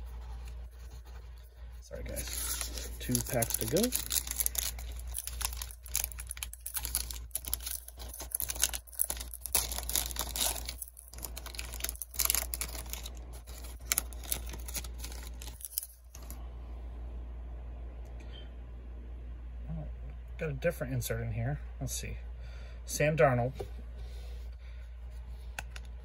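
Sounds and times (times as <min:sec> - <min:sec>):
steady low hum: 0:00.0 - 0:26.0
foil wrapper tearing and crinkling: 0:01.9 - 0:16.4.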